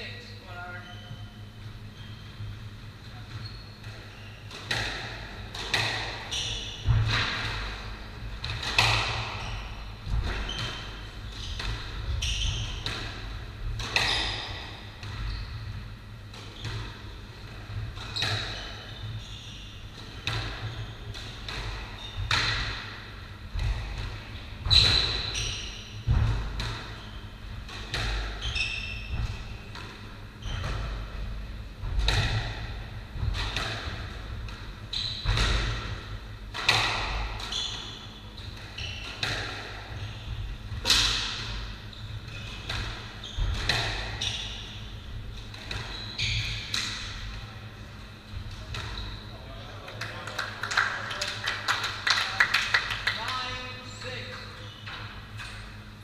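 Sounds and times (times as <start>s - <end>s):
squash ball hits echoing: 3.8s - 19.1s, 19.8s - 47.5s.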